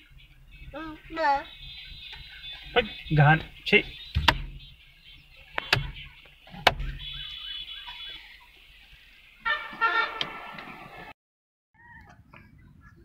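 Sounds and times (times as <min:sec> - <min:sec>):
car horn honking: 0:00.2 - 0:08.4, 0:09.4 - 0:10.8.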